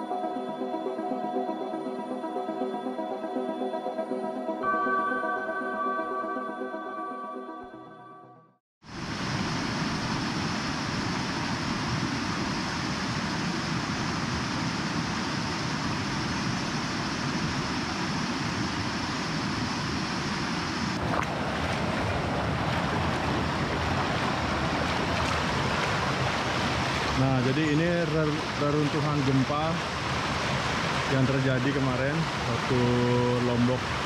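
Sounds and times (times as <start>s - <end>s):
river flowing over stones: 8.9s - 34.0s.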